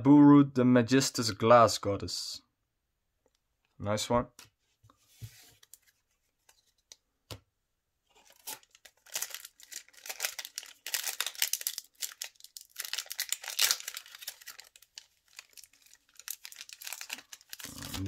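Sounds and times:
foil wrapper crinkling and tearing: 0:08.2 - 0:18.0.

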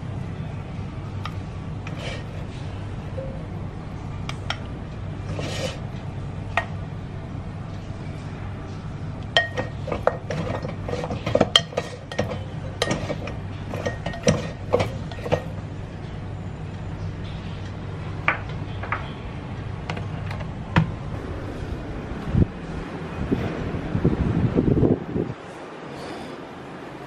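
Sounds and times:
steady low hum: 0:00.0 - 0:27.0
utensil clinking against ceramic bowl: 0:09.4 - 0:15.5.

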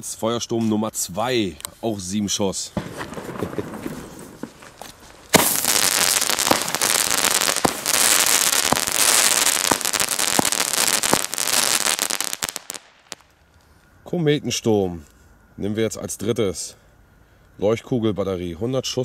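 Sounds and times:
sharp fireworks reports: 0:01.2 - 0:13.4
fireworks crackling: 0:02.0 - 0:13.6.

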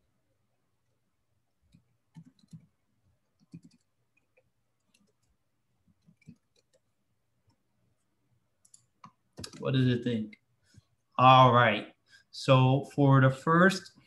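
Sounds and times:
computer keyboard typing: 0:01.7 - 0:06.9, 0:08.6 - 0:09.7.

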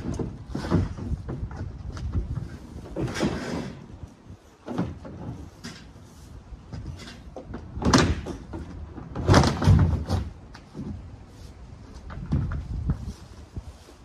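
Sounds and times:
plastic panels banging: 0:00.0 - 0:03.9, 0:04.6 - 0:06.0, 0:06.8 - 0:11.0.

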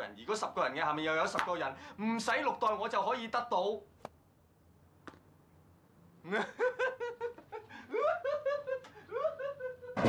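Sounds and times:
person laughing: 0:06.3 - 0:10.0.

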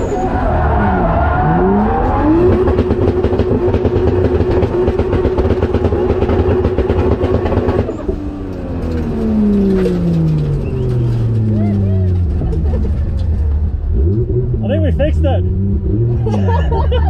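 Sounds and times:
car engine revving on limiter: 0:00.0 - 0:08.1.

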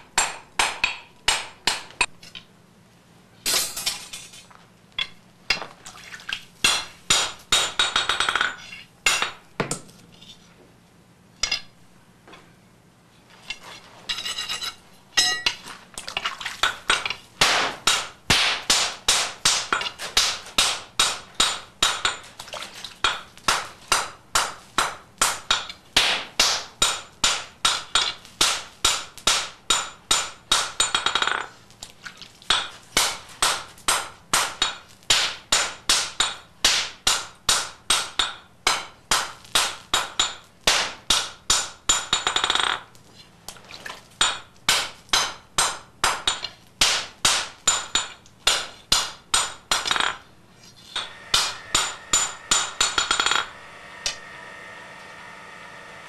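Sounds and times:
hammer ringing on anvil: 0:51.0 - 0:54.2.

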